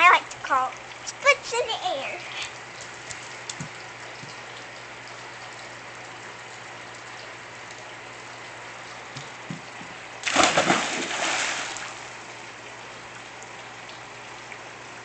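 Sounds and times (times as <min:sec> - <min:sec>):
splash into swimming pool: 0:10.2 - 0:12.1.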